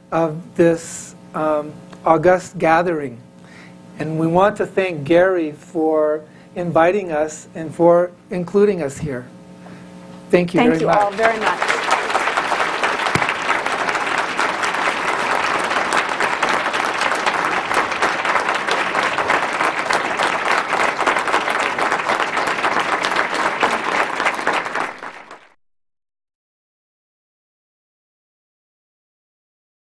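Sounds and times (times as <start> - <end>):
large audience applauding: 10.6 - 25.6.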